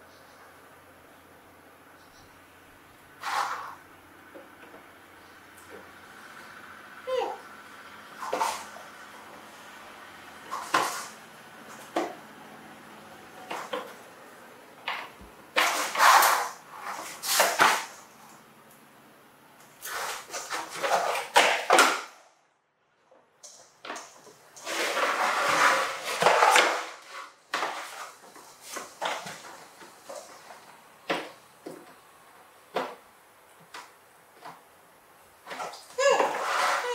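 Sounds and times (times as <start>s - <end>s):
toy truck clattering on wood floor: 23.9s - 30.5s.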